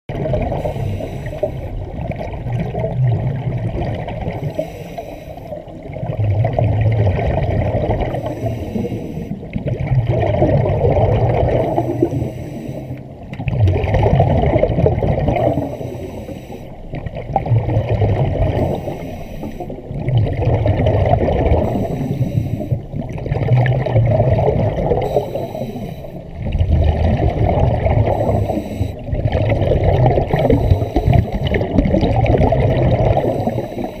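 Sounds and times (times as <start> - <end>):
rush of bubbles underwater: 0.1 - 34.0
scuba regulator hiss: 0.6 - 1.7, 4.4 - 5.6, 21.6 - 22.8, 25.0 - 26.2, 28.1 - 29.0.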